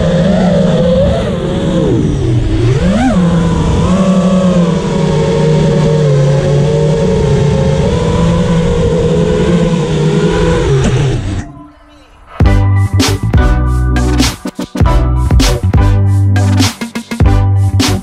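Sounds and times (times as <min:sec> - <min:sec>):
quadcopter motors buzzing: 0:00.0 - 0:11.5.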